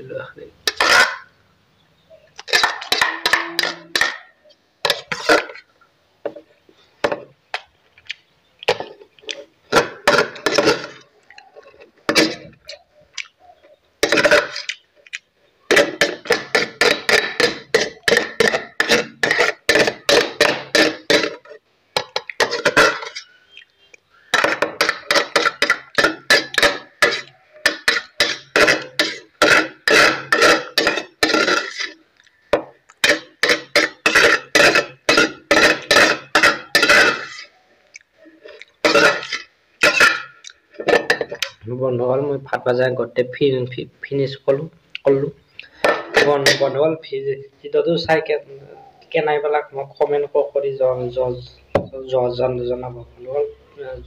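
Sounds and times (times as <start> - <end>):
metal spoon scraping steel plate: 0.7 - 1.3, 2.5 - 5.6, 14.0 - 14.7, 15.7 - 23.4, 24.3 - 32.0, 33.0 - 37.5, 38.4 - 41.5.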